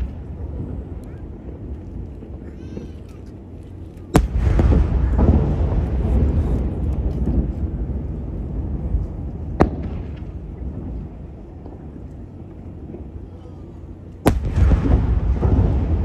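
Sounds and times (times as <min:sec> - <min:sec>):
firework low rumble: 0:00.0 - 0:16.0
firework sharp bang: 0:04.2 - 0:07.6, 0:09.6 - 0:11.0, 0:14.2 - 0:16.0.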